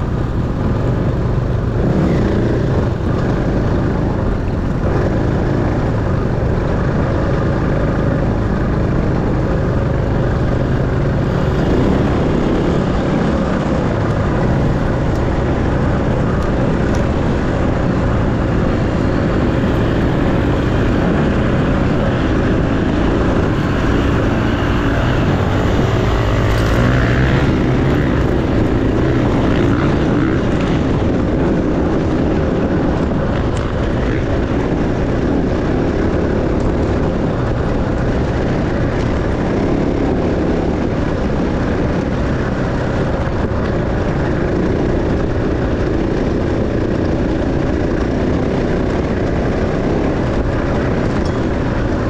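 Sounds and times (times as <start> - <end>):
dirt bike engine: 0.0 - 52.0
wind noise on microphone: 0.0 - 52.0.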